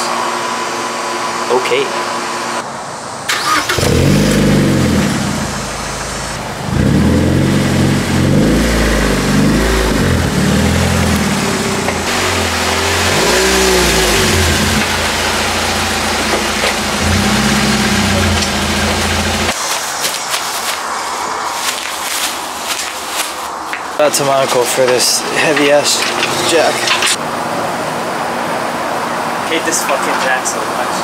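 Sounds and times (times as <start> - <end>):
car engine revving: 3.3 - 19.6.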